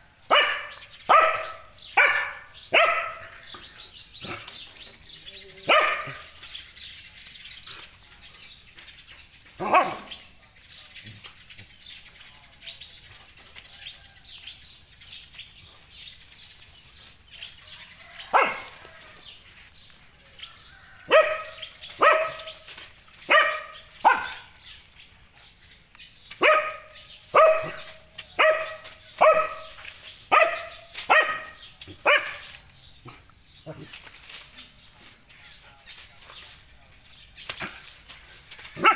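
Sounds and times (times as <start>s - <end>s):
dog barking: 0.3s - 3.5s, 5.6s - 6.4s, 9.6s - 10.2s, 18.2s - 18.9s, 21.0s - 22.6s, 23.3s - 24.6s, 26.4s - 33.8s.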